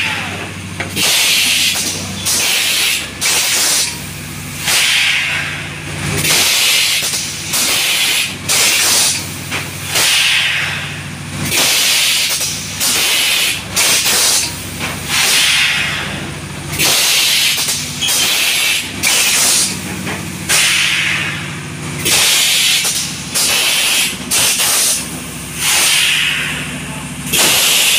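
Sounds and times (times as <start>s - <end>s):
low machine hum: 0.0s - 27.9s
compressed air hisses: 1.0s - 3.9s, 4.6s - 5.6s, 6.2s - 9.2s, 11.5s - 14.5s, 15.1s - 16.1s, 16.8s - 19.7s, 20.5s - 26.6s, 27.3s - 27.9s.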